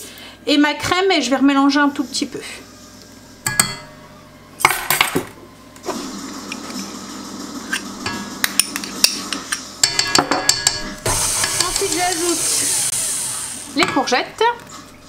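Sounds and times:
spoon clinking against bowls: 8.1 - 12.3.

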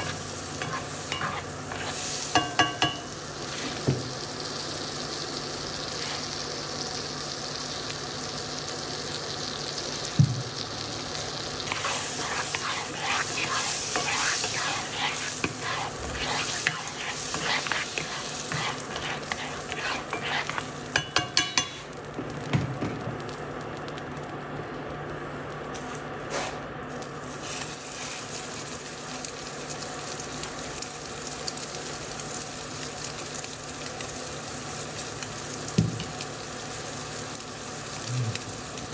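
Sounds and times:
spatula scraping pan: 0.0 - 3.8, 11.6 - 21.9
oil sizzling in skillet: 0.0 - 38.9.

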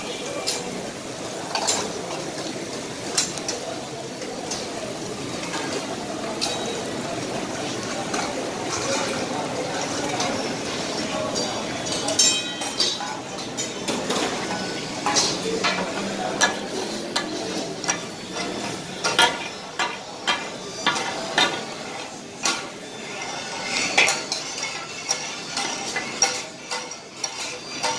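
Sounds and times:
spatulas clanking on griddle: 0.1 - 2.2, 5.5 - 6.9, 8.0 - 27.9
spatulas scraping into steel bowl: 20.8 - 27.9.

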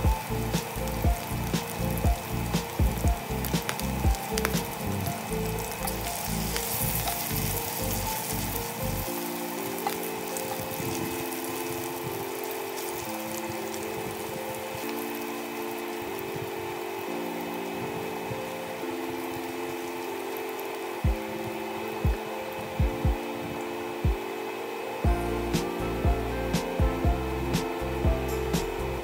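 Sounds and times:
garlic sizzling in hot oil: 0.0 - 16.3
background music: 0.0 - 29.0
spatula stirring in skillet: 5.8 - 9.0.

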